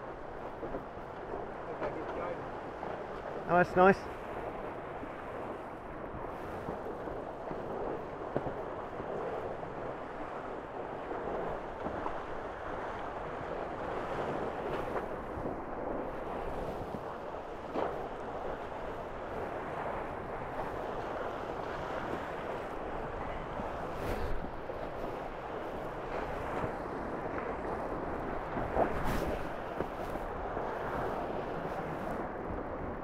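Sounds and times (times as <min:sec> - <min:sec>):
wind: 0:00.0 - 0:33.0
water rushing: 0:03.3 - 0:04.2.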